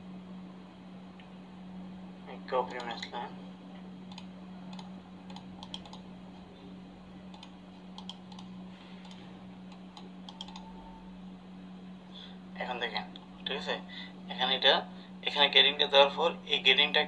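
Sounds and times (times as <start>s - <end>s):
steady low hum: 0.0s - 17.0s
keyboard keys clicking: 4.1s - 6.0s, 7.3s - 10.7s.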